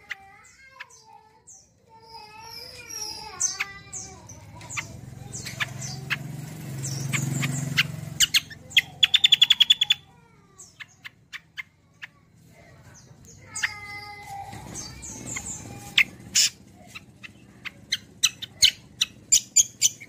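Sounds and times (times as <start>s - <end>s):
songbird chirping and trilling: 0.0s - 20.0s.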